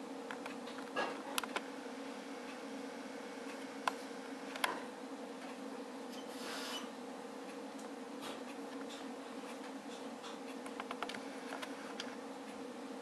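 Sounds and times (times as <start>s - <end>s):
steady low hum: 0.0s - 13.0s
small clicks: 10.6s - 12.2s.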